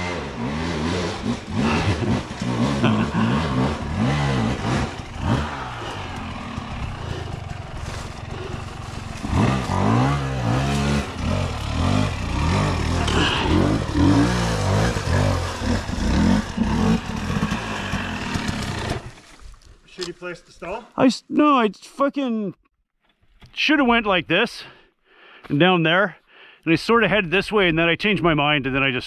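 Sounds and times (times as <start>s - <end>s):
dirt bike engine revving: 0.0s - 19.2s.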